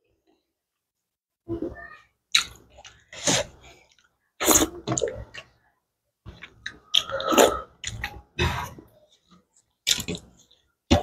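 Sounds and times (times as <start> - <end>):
person eating with mouth noises: 2.3 - 5.6, 6.3 - 11.0.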